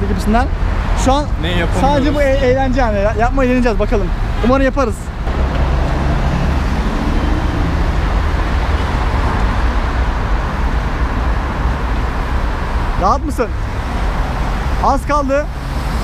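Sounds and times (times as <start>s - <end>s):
passing cars rushing: 0.0s - 16.0s
bus engine running low: 5.1s - 13.0s.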